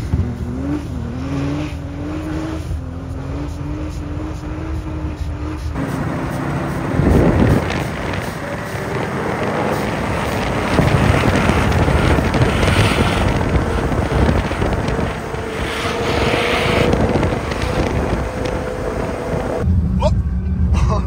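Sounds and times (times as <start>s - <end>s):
car engine under hard throttle: 0.0s - 20.4s
wind noise on microphone: 4.2s - 19.8s.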